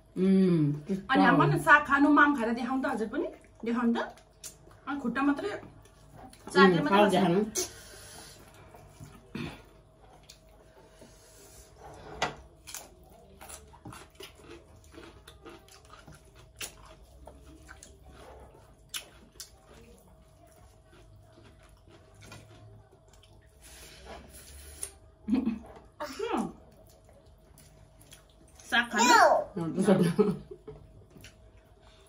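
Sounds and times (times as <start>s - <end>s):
wet chewing and lip smacks: 3.3s - 4.8s, 12.6s - 23.5s, 31.0s - 31.8s.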